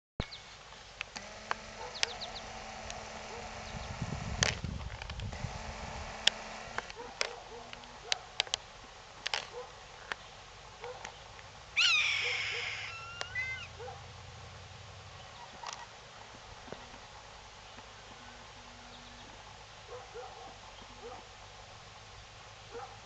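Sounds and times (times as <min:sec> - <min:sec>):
young hawk screaming: 0:11.8 - 0:13.7.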